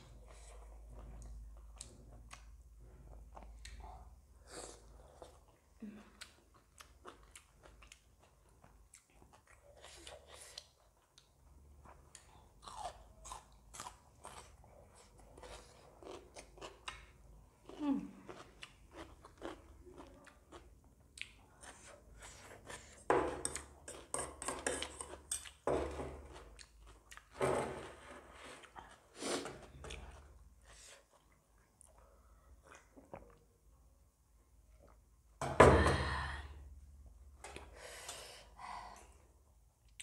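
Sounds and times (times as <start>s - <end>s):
chewing with wet mouth smacks: 5.1s - 25.6s.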